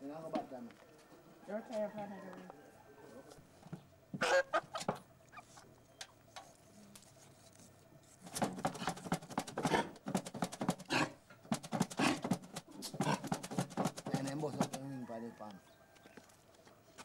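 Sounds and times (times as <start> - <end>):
chicken thrashing under tin pail: 8.2 - 14.8.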